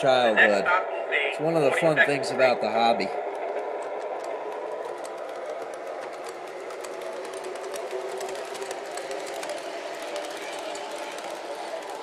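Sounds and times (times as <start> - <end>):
model train humming: 0.0 - 12.0
wheels clicking over rails: 3.1 - 12.0.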